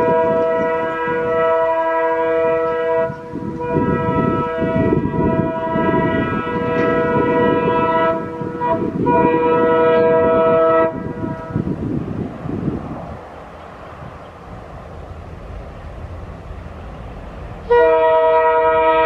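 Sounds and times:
locomotive air horn blasts: 0.0 - 11.7, 17.6 - 19.0
train engine and wheels rumbling: 0.0 - 19.0.

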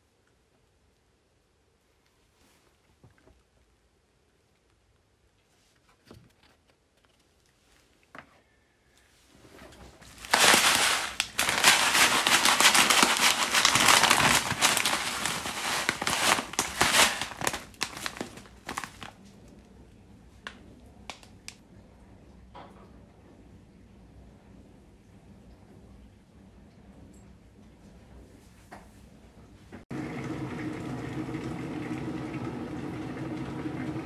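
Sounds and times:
plastic pouches crinkling: 10.0 - 19.2.

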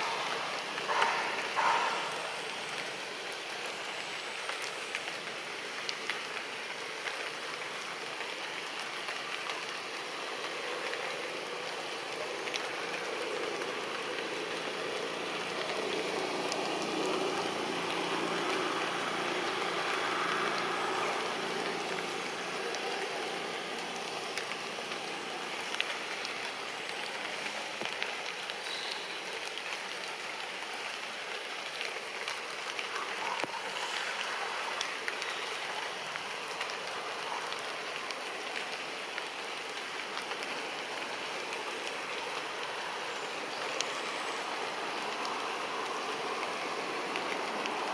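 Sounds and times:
rushing outdoor background noise: 0.0 - 47.9.

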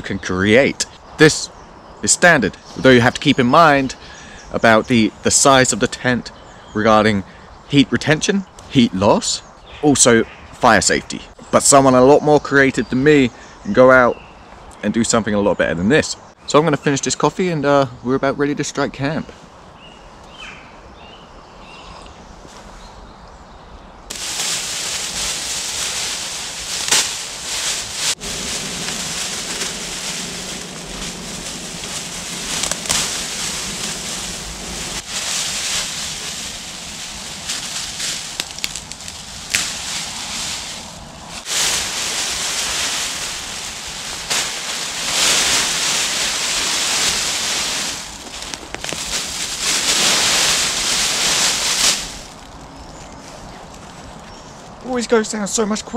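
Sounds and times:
space blankets crinkling: 24.1 - 54.2.

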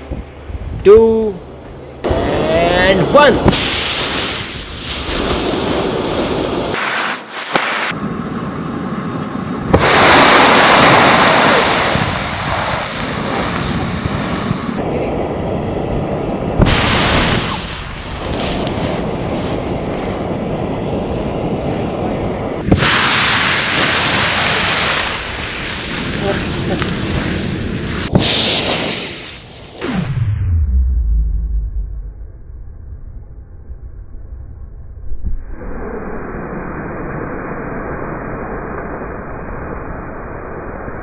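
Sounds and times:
roaring rush of fireball: 2.0 - 32.6.

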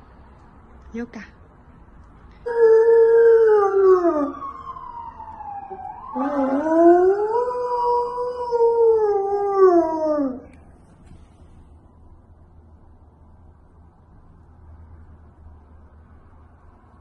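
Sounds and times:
dog howling: 5.7 - 10.5.

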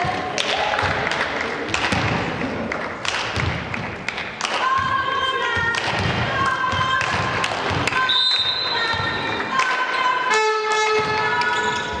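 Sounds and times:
volleyball thumps: 0.0 - 2.5, 3.1 - 9.6
players' voices: 4.5 - 12.0.

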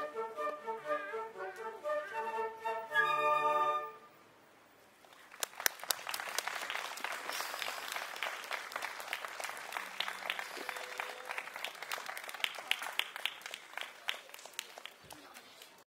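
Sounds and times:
audience applauding: 5.1 - 15.8.

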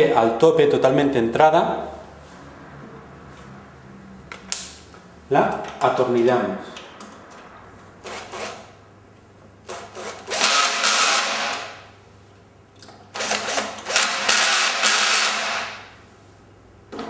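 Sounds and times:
cordless drill driving screws: 9.7 - 11.7, 13.2 - 15.7.

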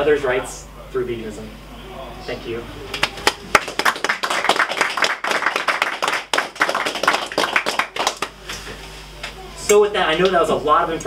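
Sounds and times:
audience applauding: 2.9 - 8.4.

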